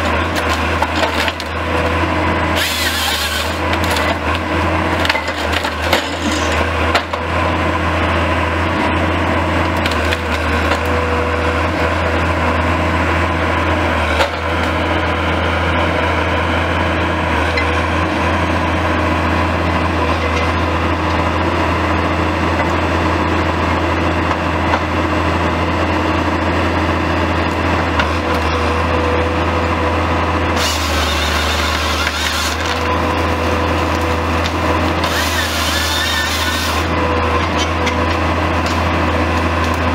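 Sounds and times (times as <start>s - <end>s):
wood cracking and splintering: 0.0s - 7.3s, 9.6s - 12.4s, 30.5s - 39.9s
diesel engine under load: 0.0s - 39.9s.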